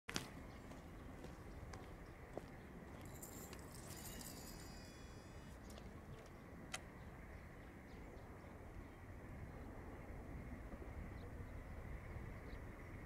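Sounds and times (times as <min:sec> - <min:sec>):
wind rumbling on microphone: 0:00.1 - 0:13.0.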